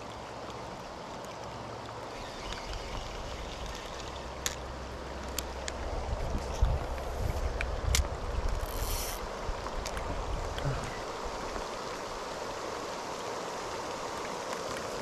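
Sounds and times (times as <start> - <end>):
rain falling on lake: 0.0 - 15.0
wind rumble on microphone: 5.3 - 11.7
fishing line whizzing off reel: 8.6 - 9.2.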